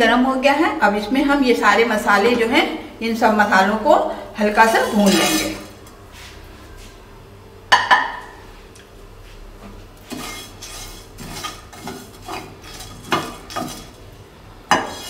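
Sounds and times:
spatula scraping seeds across pan: 4.6 - 5.8, 10.0 - 14.0, 14.8 - 15.0.

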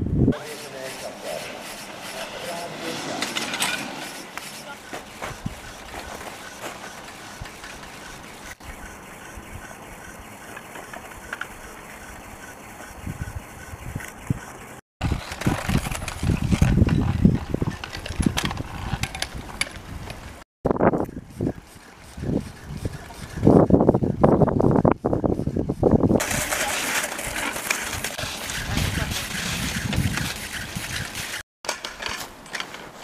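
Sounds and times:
ski lift rope rolling over rollers: 1.4 - 8.3, 15.0 - 20.4, 26.1 - 33.0.

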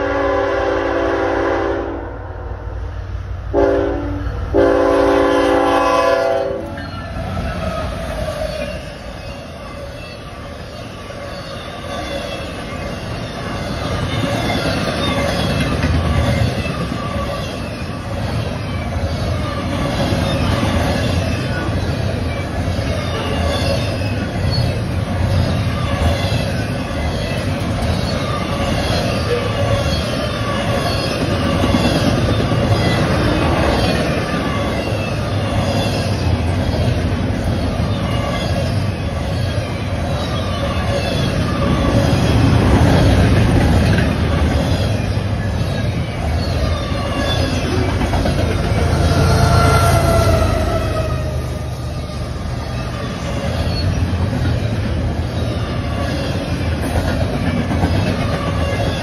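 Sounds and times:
locomotive air horn blasts: 0.0 - 2.4, 3.5 - 6.7
freight train wheels rumbling: 0.0 - 59.0.

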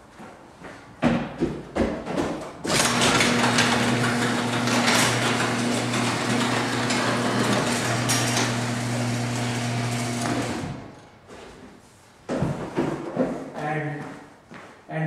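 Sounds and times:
garage door rolling on tracks: 2.6 - 11.1
garage door motor hum: 2.6 - 11.2.

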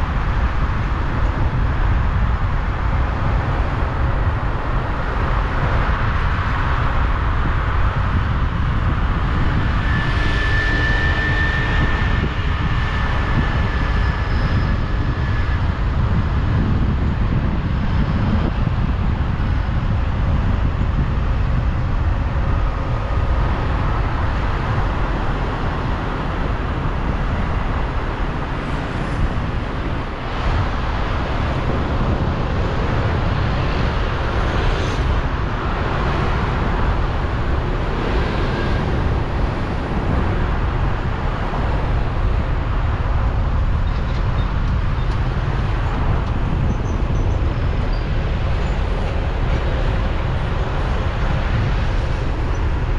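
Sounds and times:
vehicle rumble: 0.0 - 52.9.

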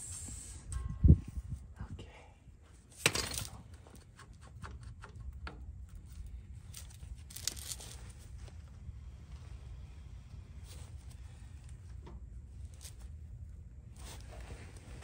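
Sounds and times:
small metal parts clinking: 6.7 - 8.0.

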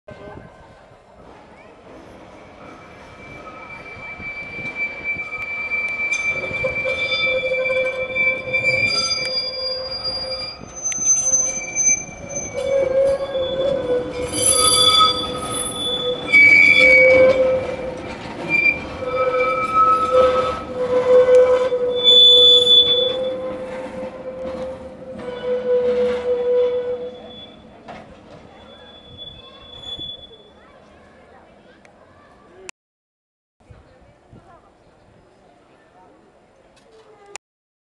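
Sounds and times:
tram wheels squealing on rails: 1.2 - 31.3.

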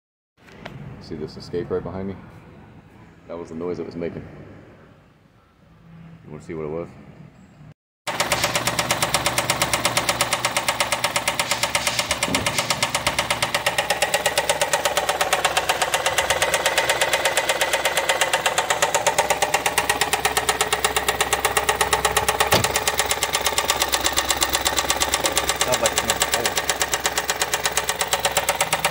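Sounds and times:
car engine running: 8.1 - 28.9
loud fast engine knocking: 8.1 - 28.9.

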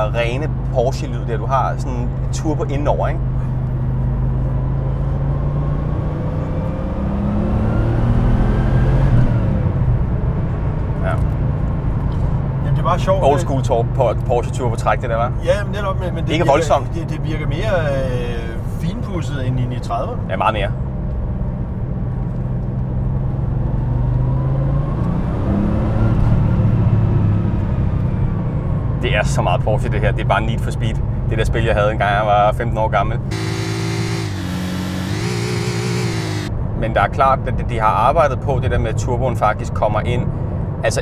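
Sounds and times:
turbocharged car engine accelerating: 3.2 - 11.3, 33.2 - 36.5
turbo whine: 33.3 - 36.5
car engine drone inside cabin: 33.3 - 36.8.

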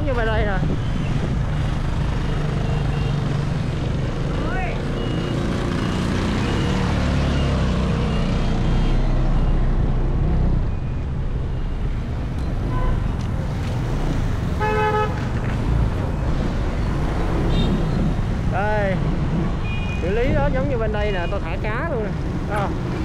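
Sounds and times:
road traffic rumble: 0.0 - 23.0
vehicle horn honk: 14.6 - 15.2.

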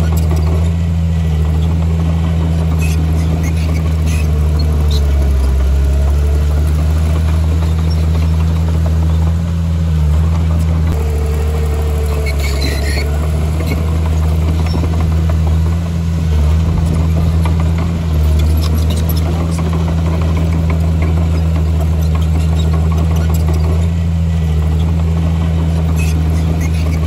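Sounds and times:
bulldozer diesel engine running: 0.0 - 27.0
faint squeal: 11.0 - 14.0.

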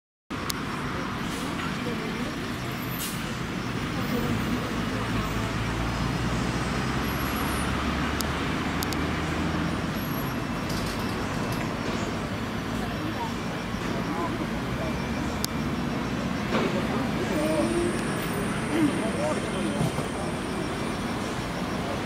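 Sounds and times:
heavy engine rumble: 0.3 - 22.0
road traffic passing: 0.3 - 22.0.

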